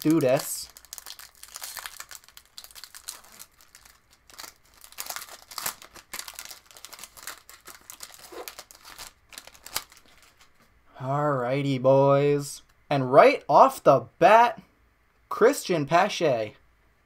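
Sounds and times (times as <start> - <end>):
wrapper crinkling and tearing: 0.0 - 10.6.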